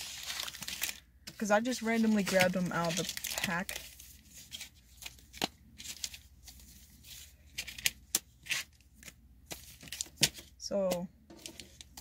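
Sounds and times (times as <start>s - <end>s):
foil packs crinkling: 0.0s - 6.2s.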